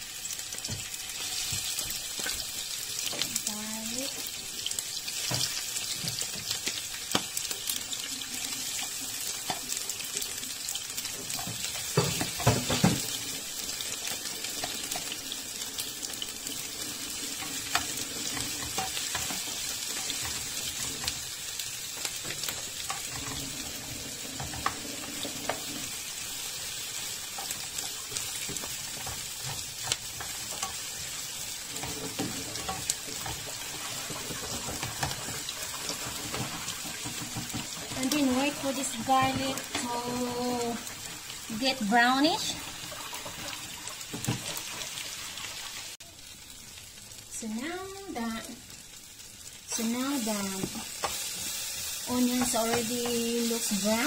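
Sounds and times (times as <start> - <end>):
onions sizzling in oil: 0.0 - 54.0
spatula scraping a pan: 15.8 - 39.9.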